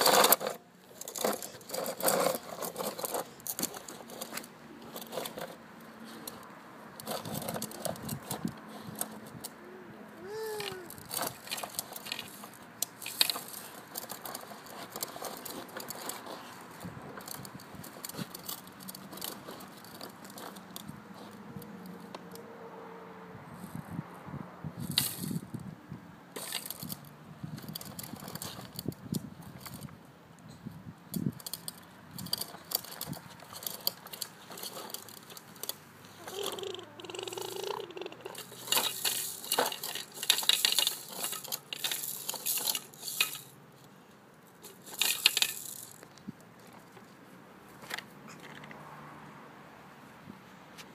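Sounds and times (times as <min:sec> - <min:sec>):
plastic toy clicking and rattling: 0:00.0 - 0:05.6, 0:07.0 - 0:09.6, 0:10.2 - 0:16.5, 0:17.2 - 0:20.9, 0:24.9 - 0:25.4, 0:26.4 - 0:29.9, 0:31.1 - 0:43.6, 0:44.6 - 0:46.1.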